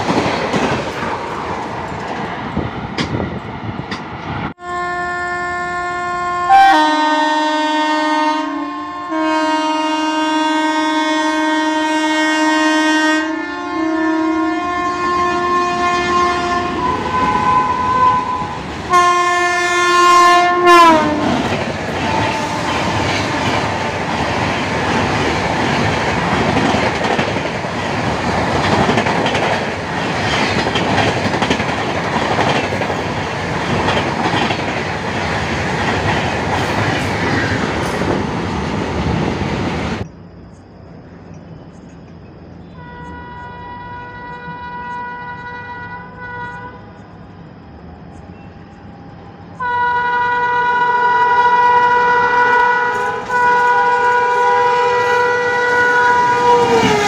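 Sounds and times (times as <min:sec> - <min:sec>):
train coaches rushing past: 0:00.0 - 0:04.6, 0:15.1 - 0:40.2, 0:42.9 - 0:57.0
rail noise and wheel clatter: 0:00.0 - 0:57.0
train horn blasts: 0:04.6 - 0:24.3, 0:42.7 - 0:47.0, 0:49.6 - 0:57.0.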